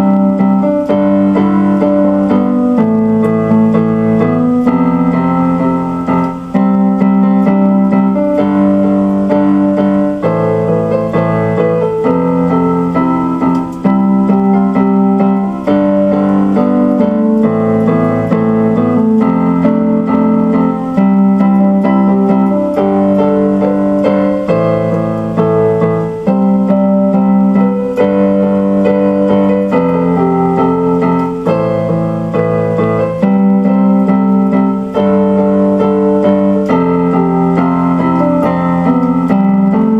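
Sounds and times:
slow electronic piano music: 0.0 - 39.9.

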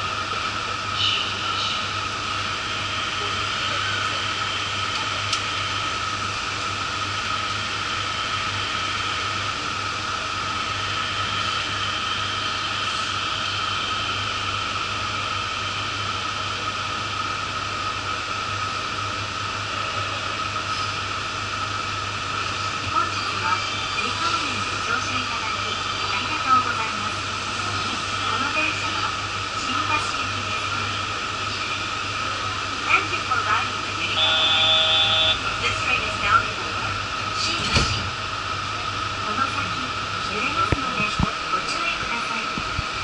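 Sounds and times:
train equipment hum and hiss: 0.0 - 43.0
high whine: 33.7 - 37.3.

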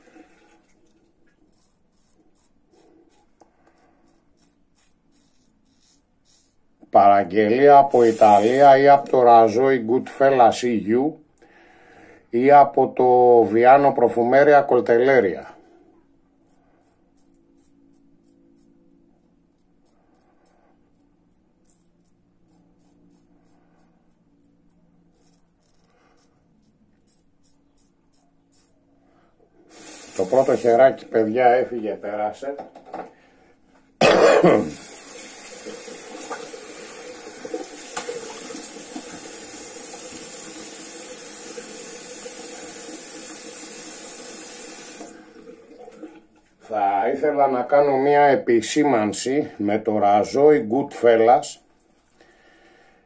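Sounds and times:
razor scraping stubble: 0.9 - 9.3, 16.3 - 29.1.

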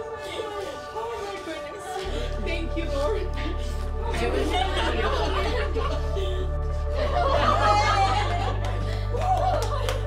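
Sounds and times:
background music with low bass: 0.0 - 10.0
people's voices: 0.0 - 10.0
light laughter: 4.2 - 10.0.

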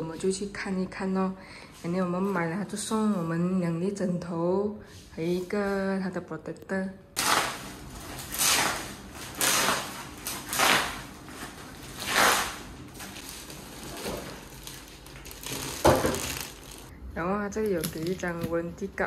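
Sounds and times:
plastic wrapping rustling: 7.2 - 16.9, 17.5 - 18.8.

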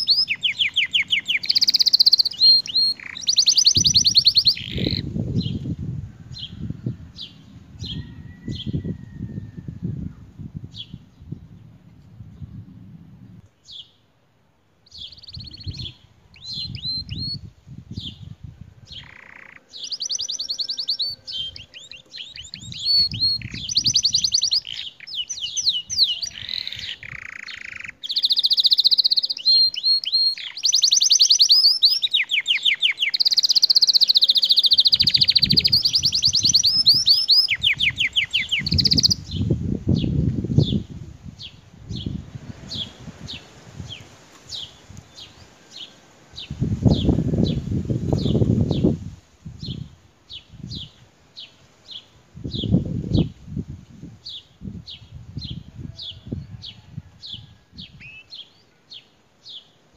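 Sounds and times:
canary singing trills: 0.0 - 5.6, 14.8 - 18.3, 18.9 - 48.9.

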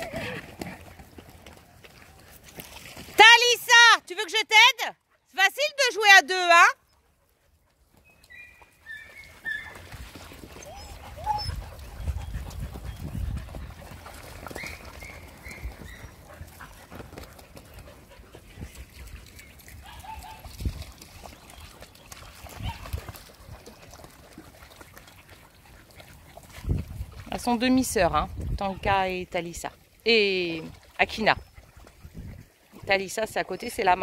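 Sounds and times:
dogs splashing in water: 0.0 - 3.9, 7.8 - 34.0
dogs yipping: 8.1 - 16.8, 19.4 - 20.6, 22.4 - 23.2.

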